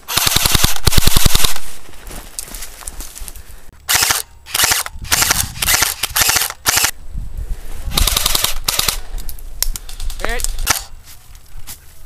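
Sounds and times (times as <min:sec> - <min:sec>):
airsoft rifle bursts: 0:03.9 - 0:06.9, 0:07.9 - 0:09.0.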